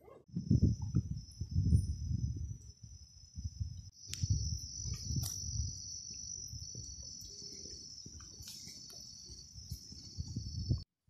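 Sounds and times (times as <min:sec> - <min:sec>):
insects trilling: 0:00.3 - 0:10.8
footsteps on dirt path: 0:05.0 - 0:10.6.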